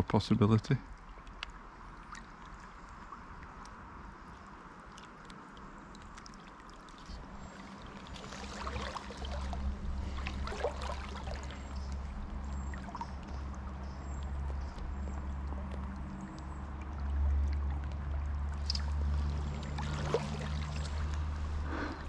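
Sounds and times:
river water rushing: 5.4s - 13.8s, 16.6s - 22.0s
low rumble: 7.2s - 22.0s.

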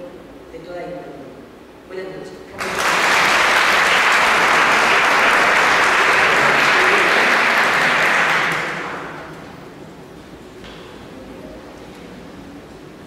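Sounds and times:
audience applauding: 2.6s - 9.6s.

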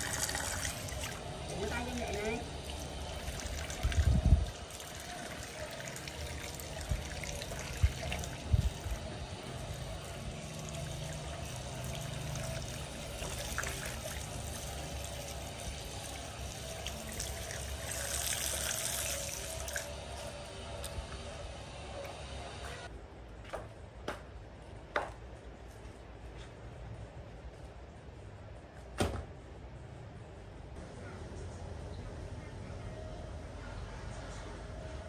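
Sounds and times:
water splashing onto concrete: 0.0s - 20.0s.

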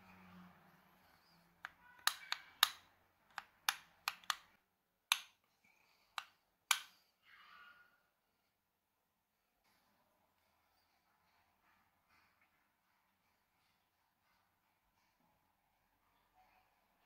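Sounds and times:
padlock shackle clicking: 1.6s - 4.5s, 5.1s - 5.4s, 6.1s - 6.9s.

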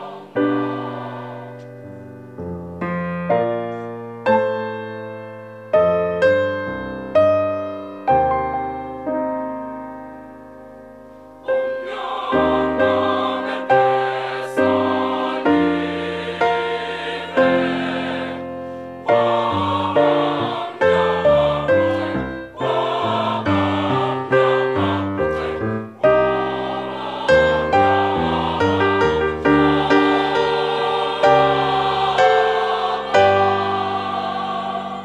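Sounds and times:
choir singing in harmony: 0.0s - 2.6s, 11.4s - 35.0s.

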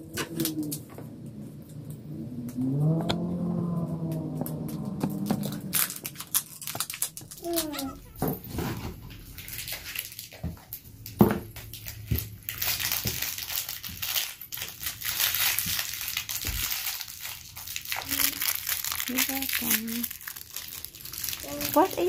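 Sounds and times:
plastic packaging crackling: 4.5s - 22.0s.

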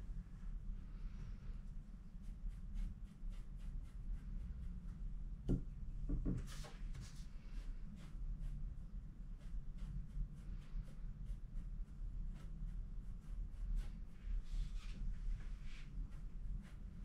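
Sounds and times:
brush strokes on wet paper: 0.0s - 5.6s, 6.4s - 17.0s
steady low hum: 0.0s - 17.0s
soft knock: 5.4s - 6.7s.

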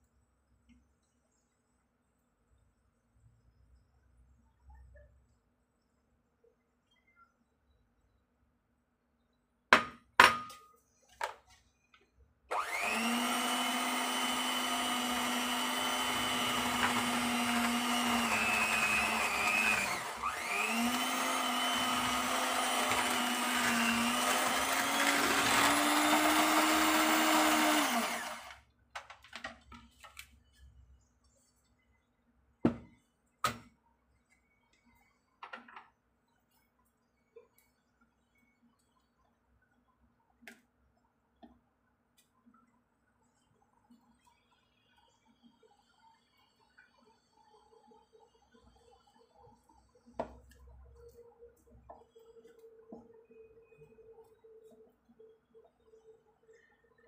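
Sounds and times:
electric hand mixer running: 12.5s - 28.6s.

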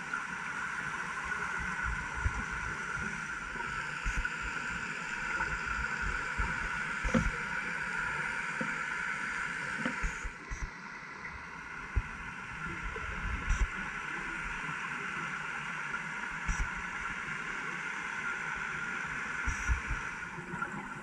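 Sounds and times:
underwater hiss: 0.0s - 10.6s.

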